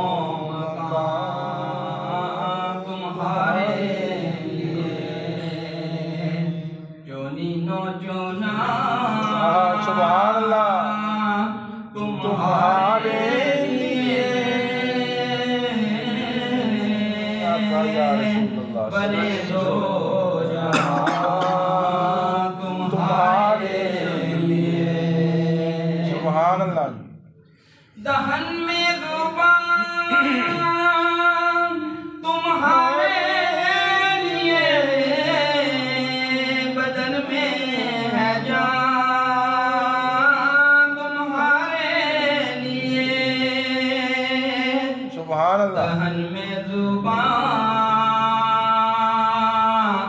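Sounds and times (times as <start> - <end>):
man singing: 0.0 - 27.0, 27.9 - 50.0.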